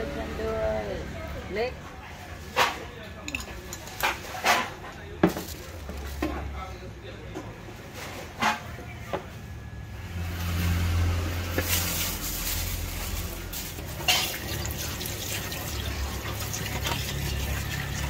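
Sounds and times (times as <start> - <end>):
water running: 13.5 - 18.0.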